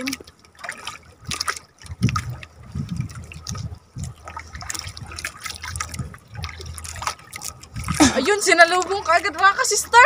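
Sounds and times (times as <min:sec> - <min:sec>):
sea water sloshing and trickling: 0:00.0 - 0:10.0
uneven low rumble: 0:01.8 - 0:08.1.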